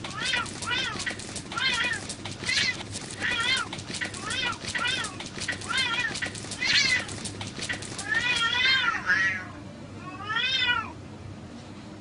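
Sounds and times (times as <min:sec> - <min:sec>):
cats yowling: 0:00.0 - 0:07.2, 0:08.0 - 0:09.5
clicks of cats scuffling: 0:00.0 - 0:08.9.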